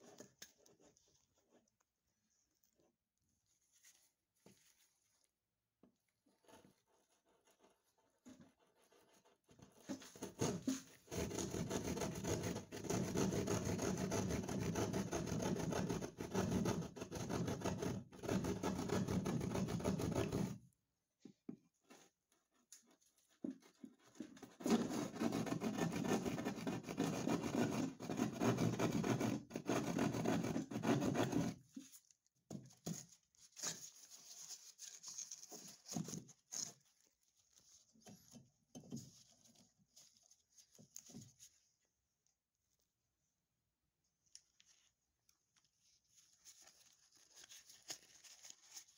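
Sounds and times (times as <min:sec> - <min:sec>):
scrapes and knocks: 0:05.8 - 0:41.6
saw cutting drywall: 0:09.9 - 0:20.6, 0:24.4 - 0:31.6.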